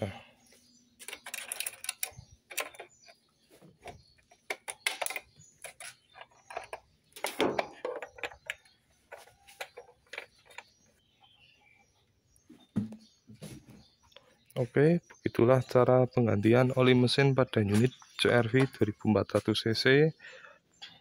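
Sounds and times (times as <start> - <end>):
clicks and knocks of handling: 1.0 - 10.8.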